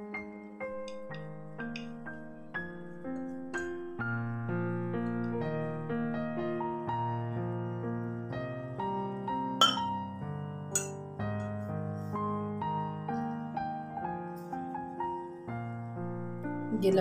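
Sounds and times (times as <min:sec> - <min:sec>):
soft piano music: 0:00.0 - 0:17.0
kitchenware clinking: 0:09.6 - 0:10.1, 0:10.7 - 0:11.1.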